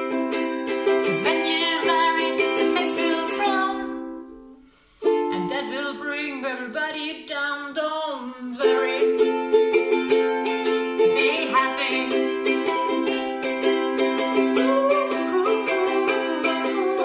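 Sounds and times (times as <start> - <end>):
ukulele strumming: 0.0 - 7.9, 8.5 - 17.0
woman singing: 1.0 - 4.3, 5.2 - 9.6, 10.9 - 13.1, 14.5 - 17.0.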